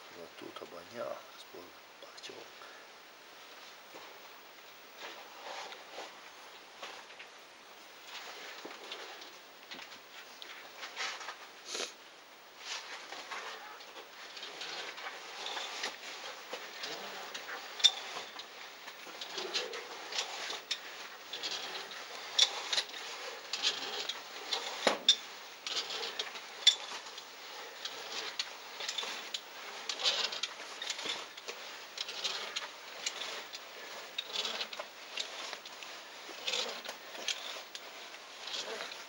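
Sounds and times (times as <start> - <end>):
suit and rope scraping: 3.4 - 39.0
metallic clicks of climbing gear: 12.8 - 39.0.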